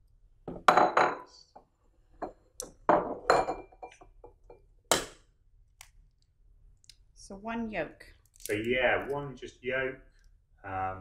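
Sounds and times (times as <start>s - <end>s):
crockery clinking on steel bowl: 2.2s - 4.7s.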